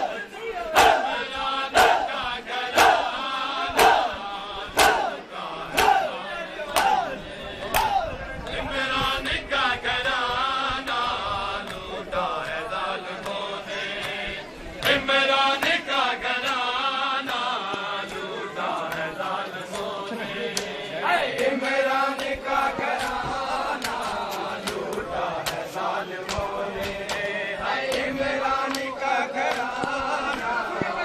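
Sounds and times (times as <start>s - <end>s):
men chanting a lament: 0.0s - 31.0s
hands slapping bare chests: 4.8s - 5.1s, 5.7s - 6.1s, 6.7s - 7.0s, 20.5s - 20.7s, 21.4s - 31.0s.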